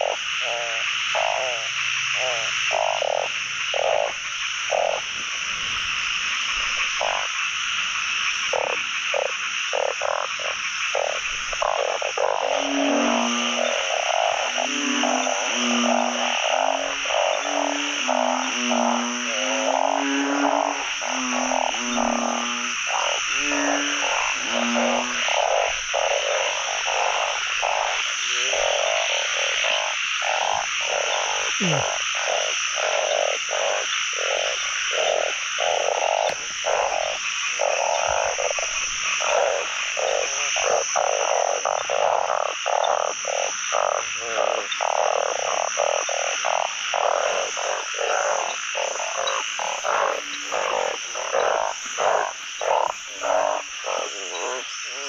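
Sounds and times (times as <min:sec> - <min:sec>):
frogs croaking in chorus: 0:00.0 - 0:55.0.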